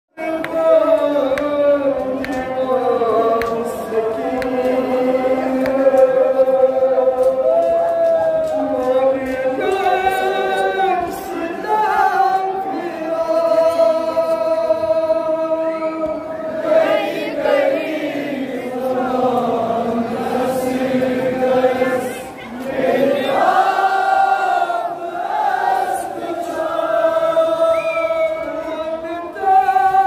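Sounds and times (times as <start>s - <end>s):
man singing into a microphone: 0.1s - 16.4s, 24.2s - 30.0s.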